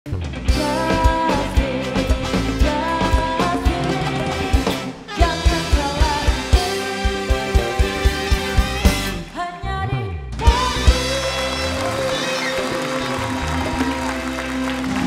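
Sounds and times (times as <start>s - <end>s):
upbeat pop music with drums: 0.3s - 9.4s, 10.3s - 12.6s.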